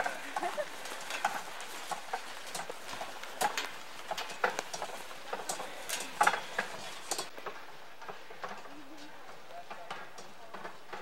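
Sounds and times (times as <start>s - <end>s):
footsteps on dirt: 0.0s - 8.3s
wooden cart wheels rattling: 0.0s - 11.0s.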